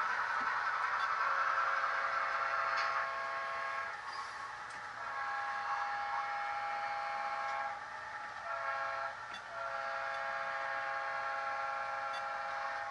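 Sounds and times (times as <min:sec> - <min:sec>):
model locomotive horn chord: 0:02.4 - 0:04.0, 0:05.0 - 0:07.8, 0:08.4 - 0:12.9.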